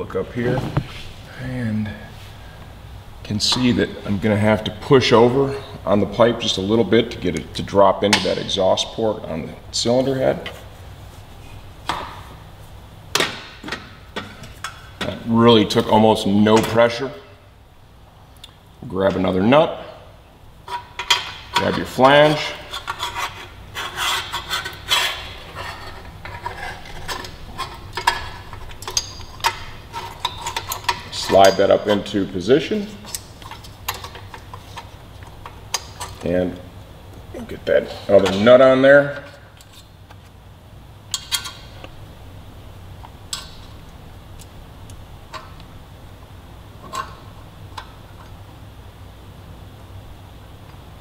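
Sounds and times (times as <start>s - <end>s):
low steady hum: 0.0s - 51.0s
metal exhaust parts scraping: 20.6s - 36.4s.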